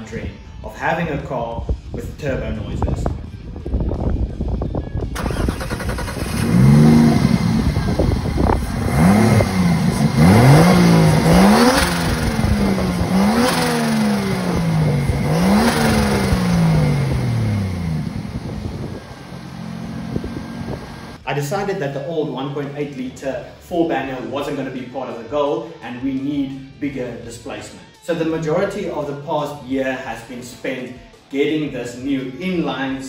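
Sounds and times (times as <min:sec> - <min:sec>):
car engine revving: 0:05.2 - 0:21.2.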